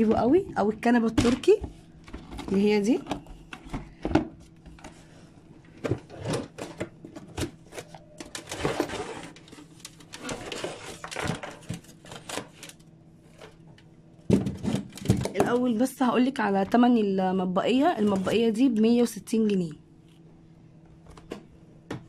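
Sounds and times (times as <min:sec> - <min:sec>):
faint steady hum: 0:00.0 - 0:22.0
plastic items clicking and knocking: 0:05.7 - 0:15.7
packaging rustling: 0:05.9 - 0:13.6.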